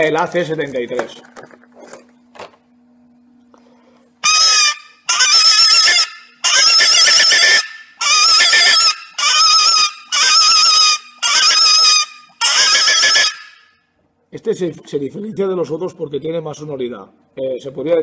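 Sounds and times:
rabbit distress call squeals: 4.2s - 13.8s.

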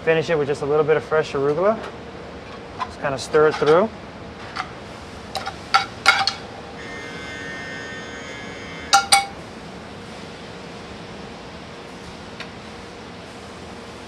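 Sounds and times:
faint high ringing tone: 6.7s - 9.4s.

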